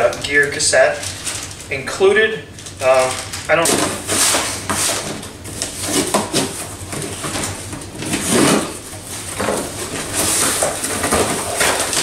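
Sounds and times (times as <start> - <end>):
cardboard scraping and rustling: 2.9 - 12.0.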